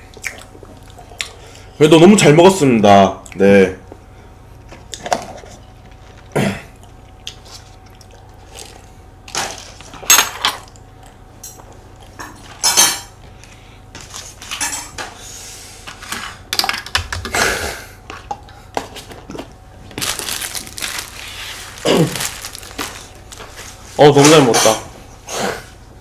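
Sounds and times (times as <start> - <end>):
paper and plastic wrappings rustling: 18.9 - 24.5.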